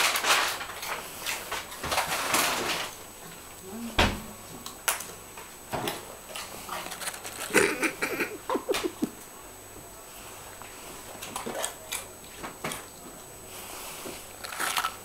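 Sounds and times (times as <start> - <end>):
dog crunching potato chips: 6.3 - 8.8, 11.1 - 12.9, 14.3 - 15.0.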